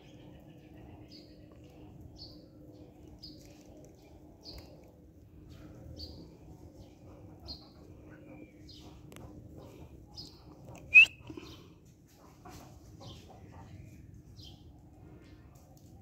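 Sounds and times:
small birds chirping: 0.0 - 11.8.

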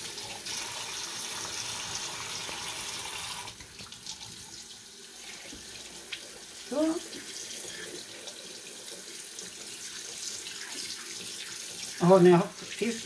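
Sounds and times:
tap water splashing in sink: 5.3 - 6.4.

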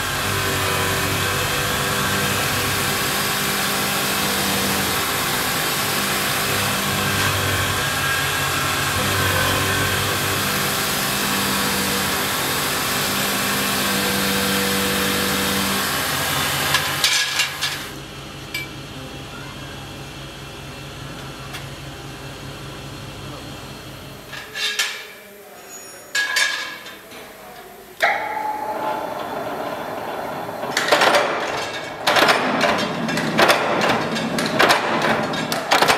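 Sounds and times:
grinding wheel grinding steel: 0.0 - 17.7, 28.0 - 35.7
workshop machine running: 0.0 - 24.6, 26.9 - 35.9
sharp metallic knocks: 28.0 - 35.9.

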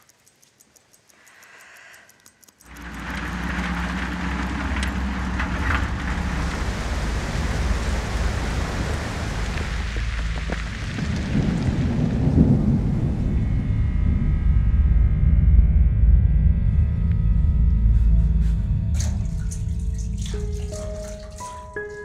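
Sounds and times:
moving truck rumble and hiss: 2.8 - 10.4.

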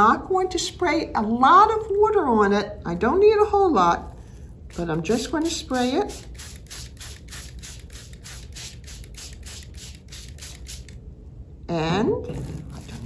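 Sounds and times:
spray bottle misting hiss: 4.7 - 11.0.

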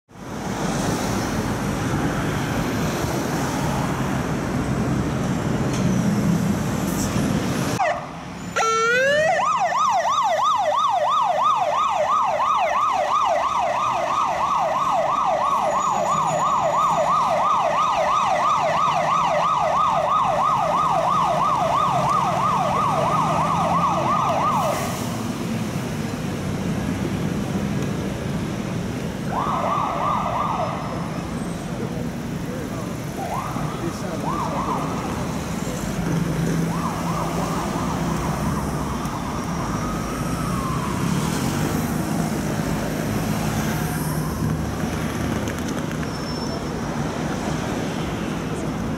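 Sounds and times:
street traffic: 0.1 - 48.9
fire engine siren yelping: 7.8 - 25.4, 29.2 - 31.9, 33.0 - 44.8.

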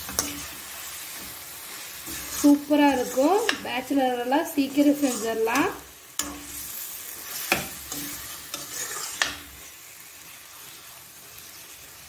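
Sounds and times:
chicken sizzling in oil: 0.0 - 12.0
ladle scraping pan: 1.9 - 3.7, 4.7 - 9.6.

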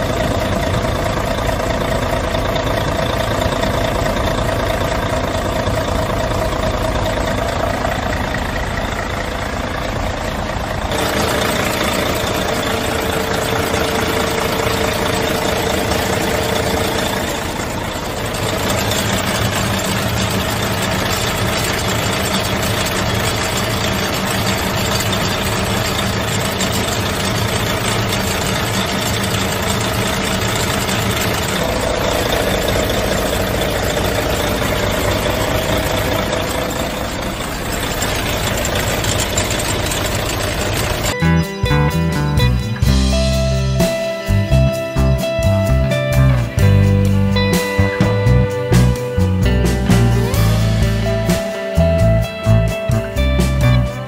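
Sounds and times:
steady whine: 0.0 - 41.6
diesel truck engine idling: 0.0 - 54.0.

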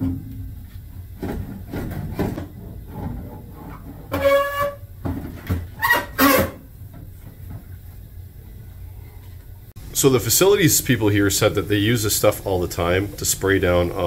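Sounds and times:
metal tank squeaking: 1.7 - 6.7.

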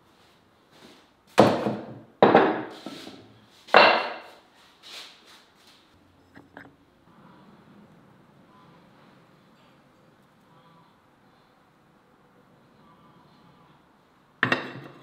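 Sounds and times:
earthenware dishes knocking on wooden table: 1.4 - 2.8, 3.8 - 4.3, 14.4 - 15.0.

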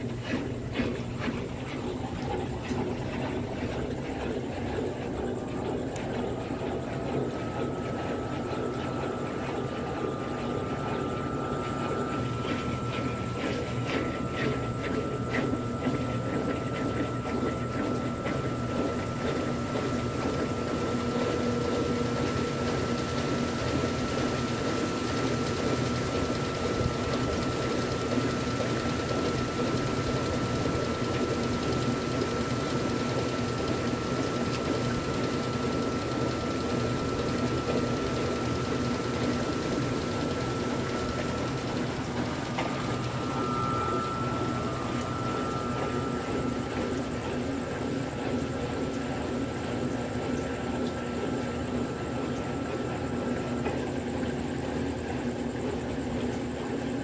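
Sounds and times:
motor hum: 0.0 - 57.0
water swishing in washing machine: 0.0 - 57.0
thin high whine: 39.2 - 50.0.

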